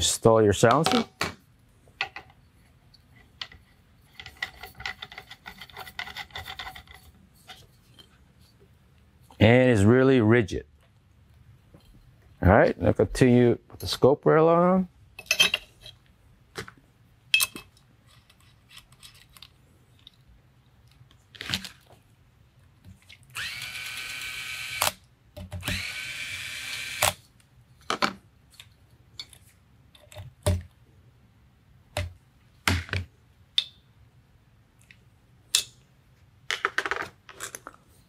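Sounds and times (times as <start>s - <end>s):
tools clicking and knocking: 2.0s - 2.4s, 3.0s - 8.1s, 17.3s - 20.2s
electric screwdriver running: 23.4s - 25.0s, 25.6s - 27.2s.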